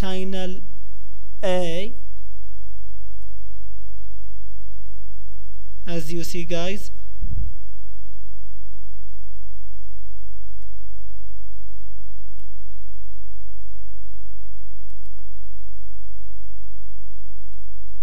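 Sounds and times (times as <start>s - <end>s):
low electrical hum: 0.0s - 18.0s
mouse clicks: 14.8s - 15.2s.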